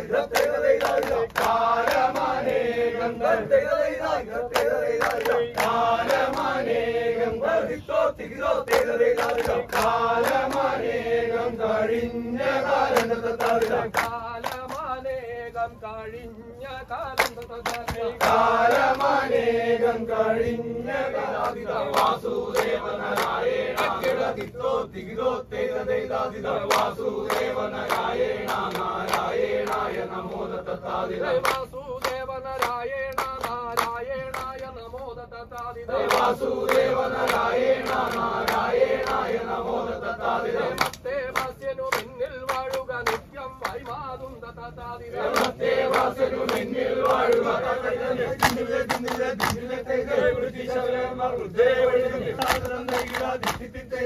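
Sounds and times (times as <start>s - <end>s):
hand claps keeping time: 0.0s - 6.7s, 8.2s - 11.0s, 12.8s - 15.0s, 17.0s - 19.4s, 21.3s - 24.6s, 26.1s - 30.1s, 31.3s - 39.8s, 40.7s - 44.0s, 45.3s - 50.3s, 52.3s - 54.0s
men's chorus chanting: 0.0s - 54.0s.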